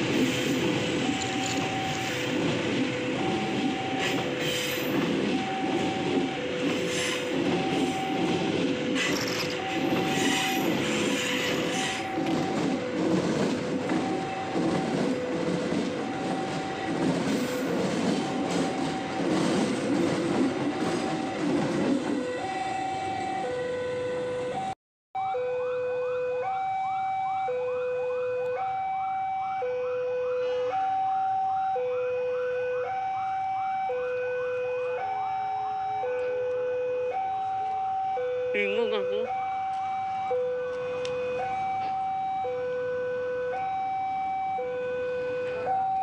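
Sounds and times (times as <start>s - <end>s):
train coaches rumbling past: 0.0s - 24.8s, 39.8s - 42.4s
two-tone crossing alarm: 0.0s - 46.0s.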